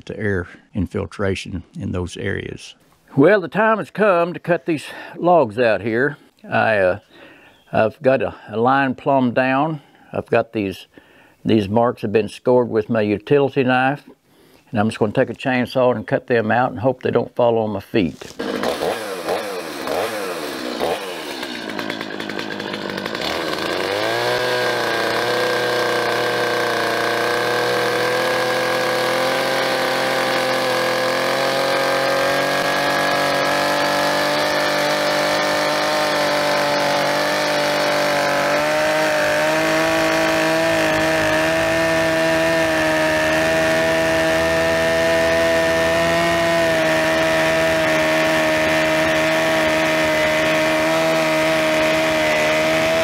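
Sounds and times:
chainsaw cutting log: 18.2 - 53.0.

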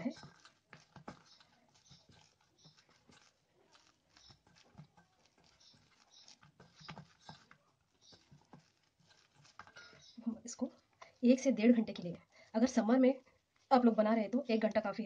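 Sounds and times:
dough patted by hand: 0.0 - 10.2.

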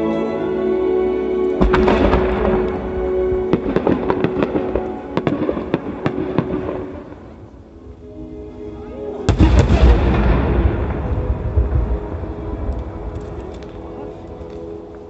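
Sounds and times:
recorded music: 0.0 - 15.0
fireworks popping: 1.6 - 7.4.

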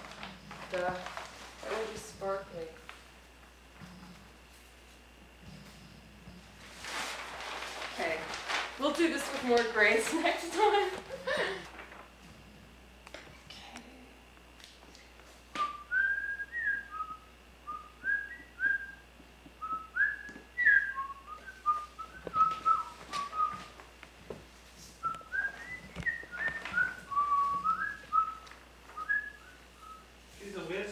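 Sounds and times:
paper pages rustling: 0.0 - 2.1, 6.6 - 12.1, 21.7 - 29.2
person whistling a tune: 15.6 - 19.0, 19.6 - 23.7, 25.0 - 28.4, 29.0 - 30.0.

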